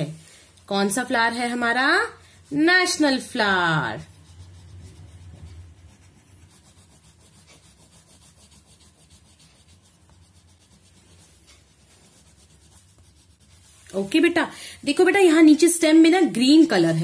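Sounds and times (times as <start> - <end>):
crayon scratching on paper: 0.8 - 14.4.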